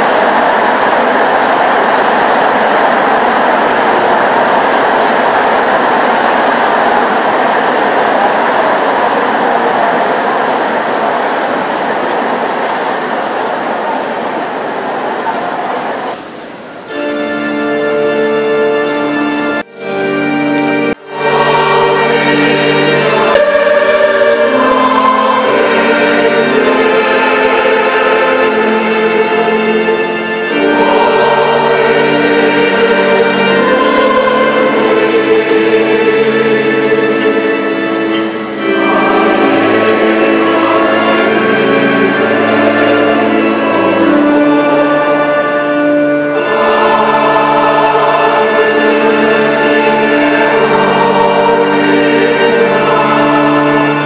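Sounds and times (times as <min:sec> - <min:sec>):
choir singing a hymn: 0:00.0 - 0:54.0
organ: 0:16.2 - 0:54.0
instrumental accompaniment: 0:16.9 - 0:54.0.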